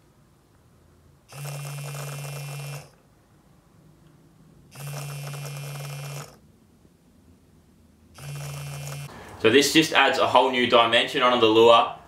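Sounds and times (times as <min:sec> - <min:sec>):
vibration motor buzzing in water: 0:01.3 - 0:03.0, 0:04.7 - 0:06.4, 0:08.2 - 0:09.1.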